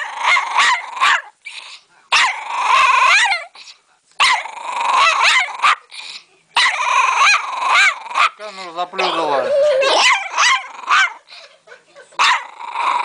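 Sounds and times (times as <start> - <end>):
dog bark-growling: 0.0 - 1.3, 2.1 - 3.5, 4.2 - 5.9, 6.6 - 8.4, 9.0 - 11.2, 12.2 - 13.0.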